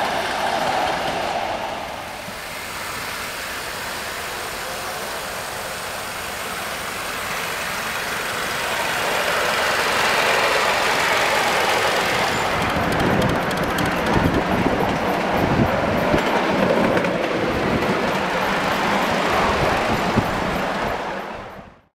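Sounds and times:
miniature train rushing: 0.0s - 21.8s
wheels clicking over rail joints: 5.8s - 21.4s.

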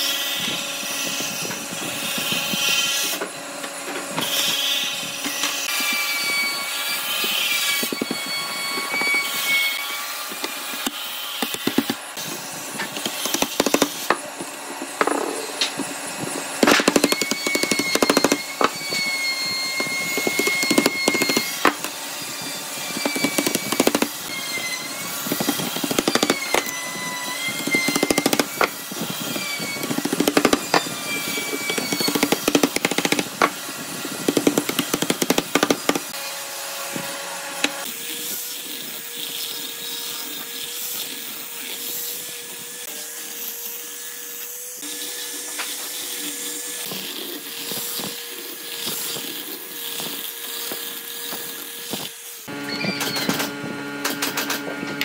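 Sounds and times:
power tool motor humming: 0.0s - 55.0s
tools knocking and scraping wood: 7.2s - 36.2s.

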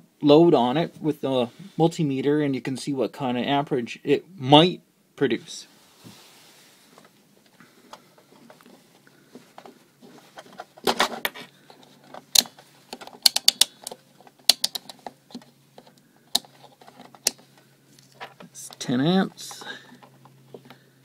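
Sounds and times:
test leads being handled: 7.0s - 20.9s.

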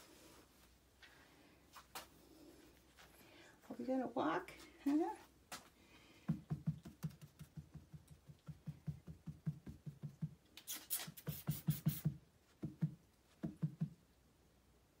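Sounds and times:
fingers patting a towel: 6.3s - 10.5s, 11.2s - 14.0s.

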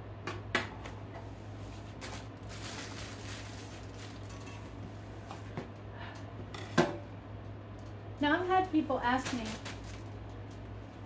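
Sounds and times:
plastic bag rustling: 1.5s - 5.3s, 9.0s - 11.0s.

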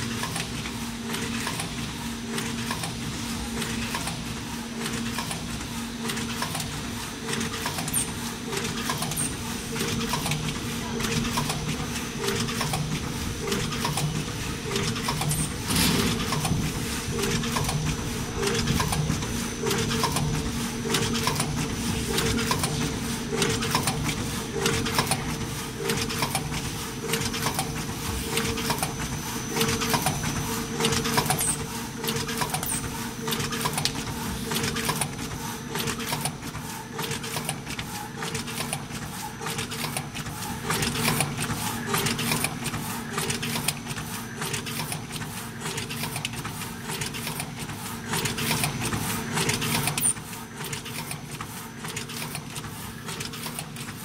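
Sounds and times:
rapid mechanical clicking: 0.1s - 3.0s, 4.8s - 54.0s.

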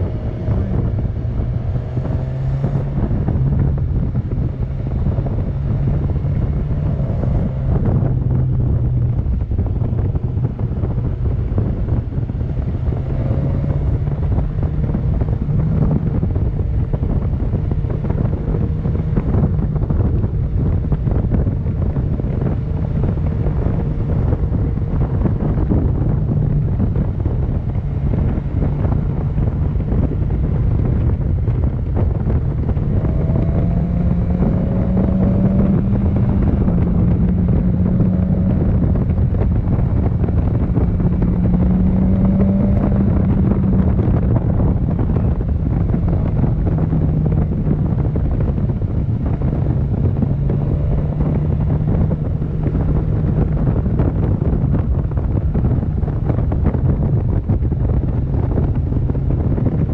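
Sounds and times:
motorcycle engine cruising: 0.0s - 59.9s
wind rushing over microphone: 0.0s - 59.9s.

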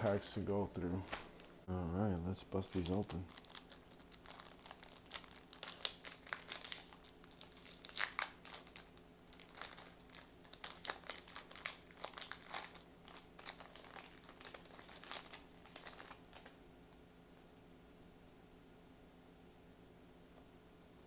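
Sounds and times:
foil wrappers crinkling and tearing: 0.8s - 1.6s, 2.5s - 16.6s.

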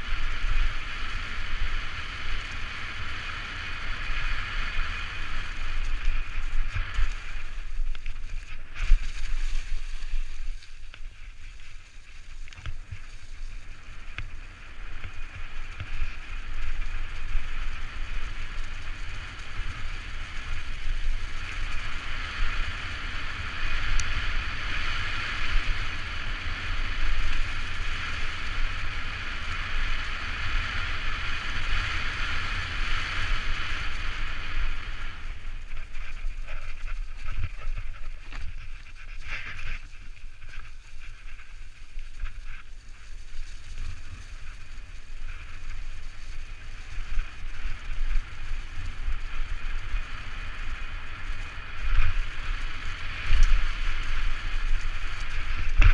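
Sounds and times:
bike rattling: 0.0s - 55.9s
tyres rolling over leaves: 0.0s - 55.9s
wind rumbling on microphone: 0.0s - 55.9s.

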